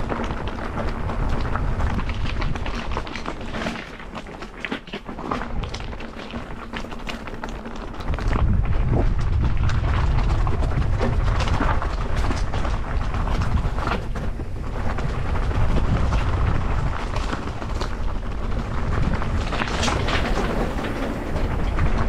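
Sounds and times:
bike rattling over stony trail: 0.0s - 22.0s
wind rumble on microphone: 0.0s - 22.0s.

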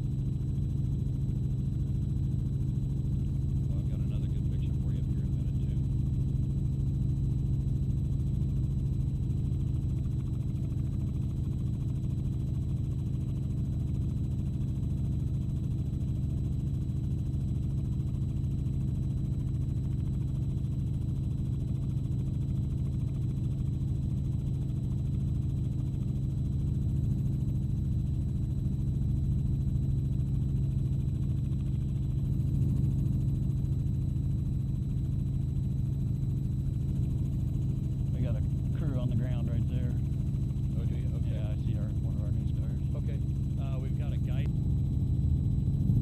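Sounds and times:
helicopter engine and rotor drone: 0.0s - 46.0s.

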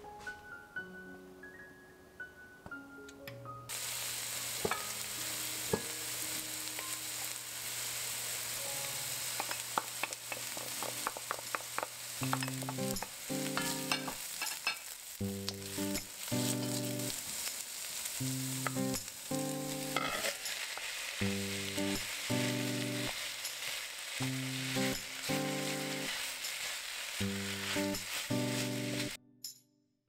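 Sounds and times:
onion and garlic sizzling in oil: 3.7s - 29.2s
wooden spoon scraping and tapping pot: 9.4s - 14.8s.

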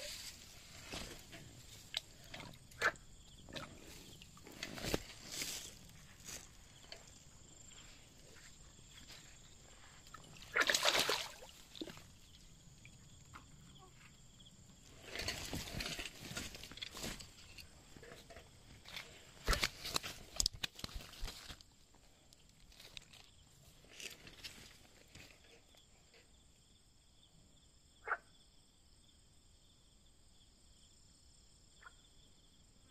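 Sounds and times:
insects trilling: 0.0s - 32.9s
fish splashing in water: 10.4s - 12.0s.

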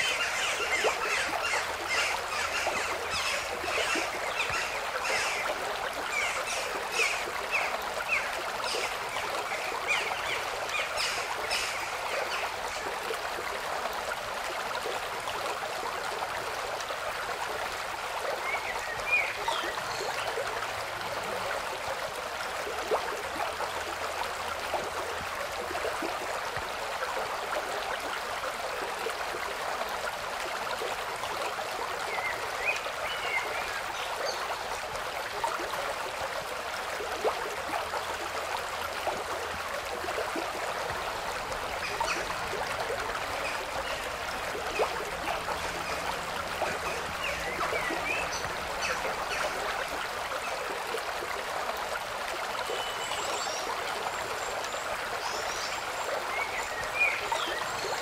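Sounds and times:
stream running water: 0.0s - 58.0s.

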